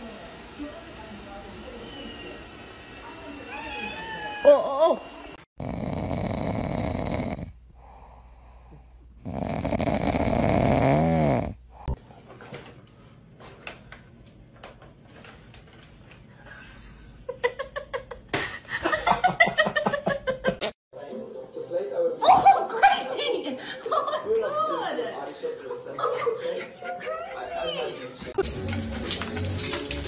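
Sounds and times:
dog making rough rasping noises: 9.2 - 11.5.

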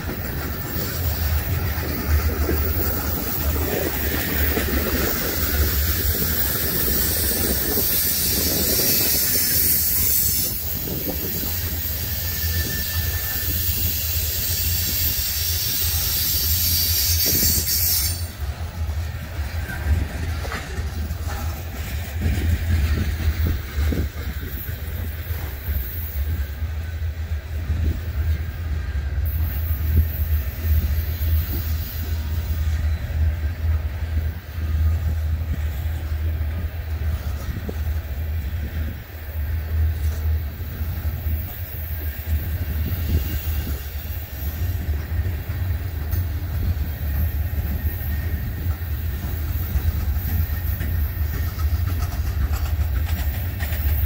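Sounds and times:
wheels squealing: 0.0 - 26.6
freight train rumbling past: 0.0 - 54.0.

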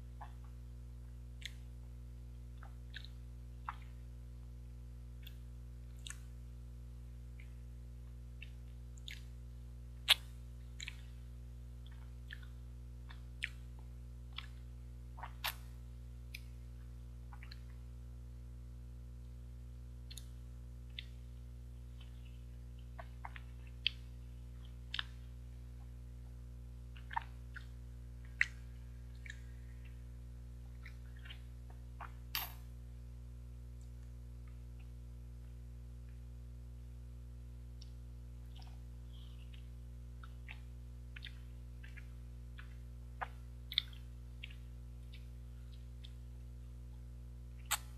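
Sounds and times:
steady low hum: 0.0 - 47.9
wet mouth clicks and smacks: 2.6 - 4.0, 5.2 - 6.3, 8.4 - 9.3, 10.0 - 11.1, 14.3 - 15.7, 17.3 - 17.8, 20.1 - 21.2, 23.0 - 24.0, 26.9 - 30.0, 39.4 - 46.2, 47.6 - 47.9.

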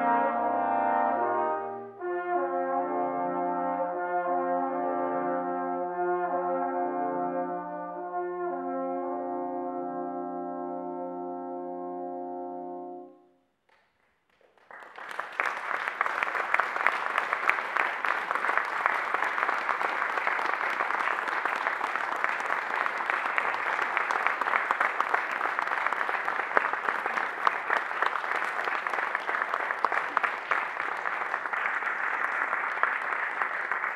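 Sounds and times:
trombone chord: 0.0 - 13.2
audience applause: 14.3 - 33.9.

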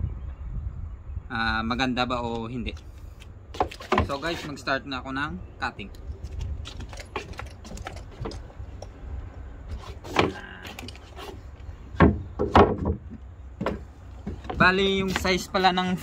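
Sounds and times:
wooden boards knocking and clattering: 3.6 - 4.4, 9.8 - 15.3.

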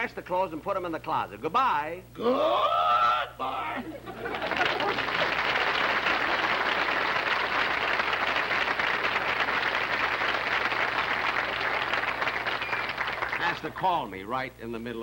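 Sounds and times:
audience applauding: 4.1 - 13.9.

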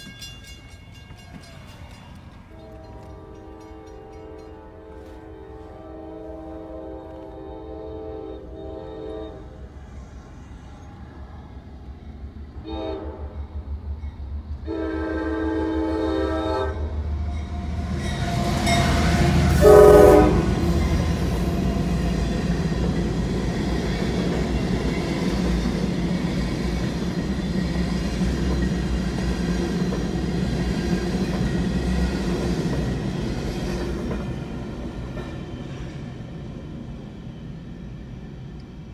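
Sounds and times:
freight train rolling: 0.0 - 38.9
locomotive horn blasts: 2.5 - 9.6, 12.6 - 13.4, 14.6 - 17.0, 18.1 - 20.8.

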